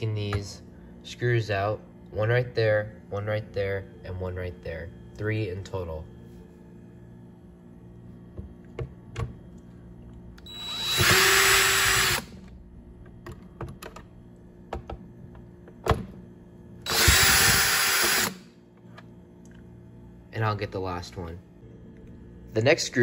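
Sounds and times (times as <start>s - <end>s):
electric screwdriver running: 10.5s - 12.3s, 16.9s - 18.4s.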